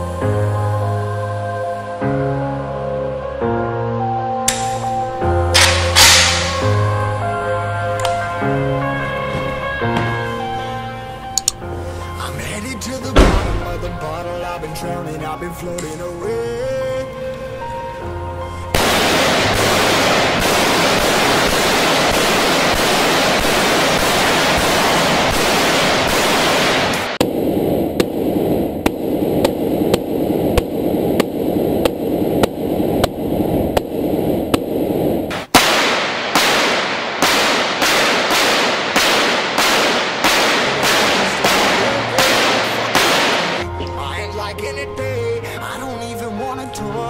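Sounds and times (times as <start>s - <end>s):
rifle fire: 5.5s - 6.9s, 13.2s - 13.9s, 18.8s - 27.3s, 35.3s - 43.6s.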